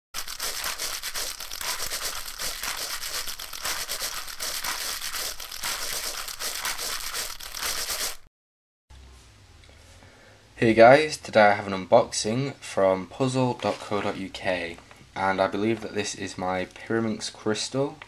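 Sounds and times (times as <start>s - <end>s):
dense high-pitched crinkling: 0.1s - 8.3s.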